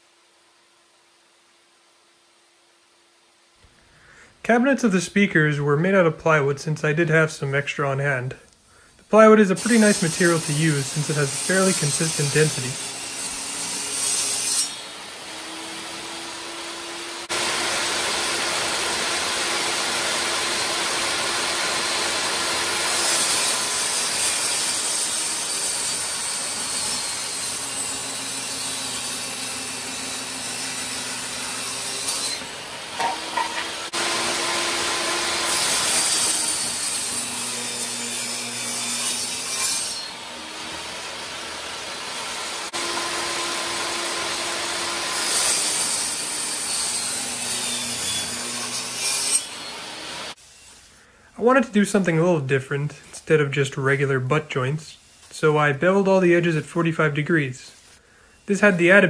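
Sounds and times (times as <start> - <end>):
table saw cutting plywood: 9.1 - 50.9.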